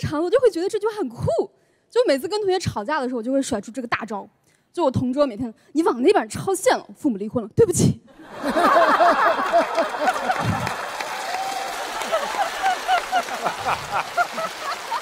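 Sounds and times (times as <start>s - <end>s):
studio audience laughing: 8.2s - 15.0s
audience applauding: 8.5s - 15.0s.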